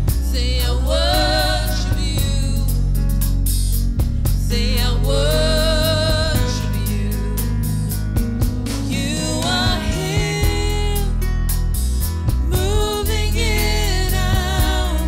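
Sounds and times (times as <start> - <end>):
keyboard bass and drums: 0.0 - 15.0
woman singing with vibrato: 0.2 - 2.9, 4.4 - 7.4, 8.9 - 11.2, 12.5 - 15.0.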